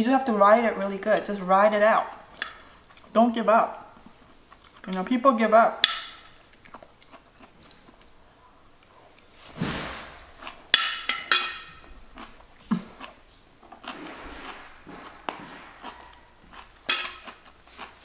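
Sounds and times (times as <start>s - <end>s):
soft chewing: 2.3s - 3.2s, 4.0s - 5.0s, 6.3s - 9.5s, 11.8s - 18.0s
brief hiss: 9.4s - 10.3s
metal spoon clinking on plate: 10.8s - 11.8s, 16.8s - 17.4s.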